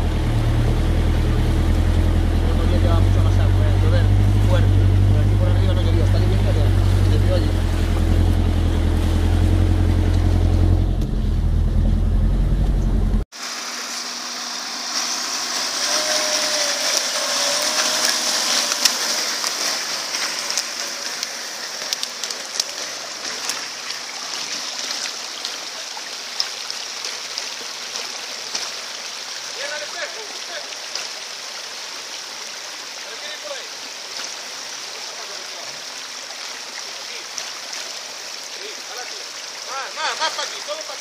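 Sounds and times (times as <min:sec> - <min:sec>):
engine running: 0:00.0 - 0:25.2.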